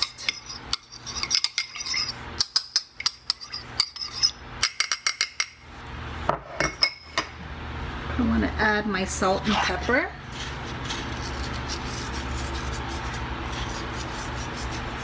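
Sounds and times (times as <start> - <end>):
spoon clinking against ceramic dish: 0.0 - 5.6.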